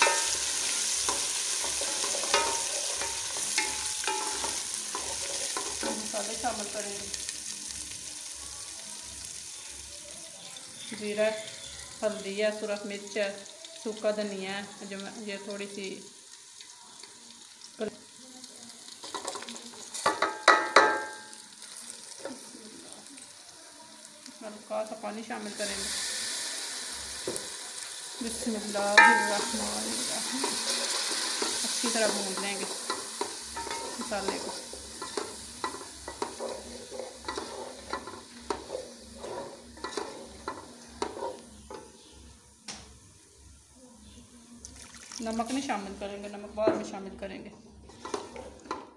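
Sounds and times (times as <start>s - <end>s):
onions sizzling in oil: 0.0s - 48.9s
wooden spatula scraping a pot: 29.0s - 42.1s, 47.8s - 48.8s.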